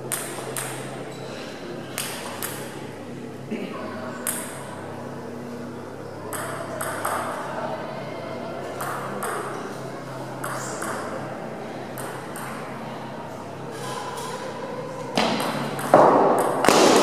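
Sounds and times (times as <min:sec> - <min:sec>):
steady low hum: 0:00.0 - 0:17.0
table tennis ball bouncing: 0:00.1 - 0:00.9, 0:02.0 - 0:02.7, 0:04.2 - 0:04.6, 0:06.3 - 0:07.4, 0:08.8 - 0:09.5, 0:10.4 - 0:11.1, 0:12.0 - 0:12.7, 0:15.2 - 0:17.0.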